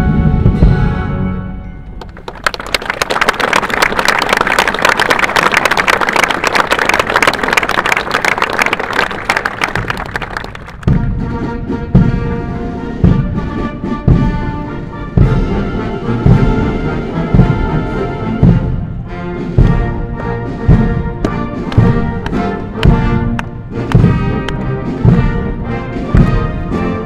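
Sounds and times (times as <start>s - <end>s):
bass drum beats: 10.8s - 12.4s, 13.0s - 26.8s
sustained brass chords: 10.9s - 27.0s
snare drum roll: 15.2s - 18.8s, 19.5s - 27.0s.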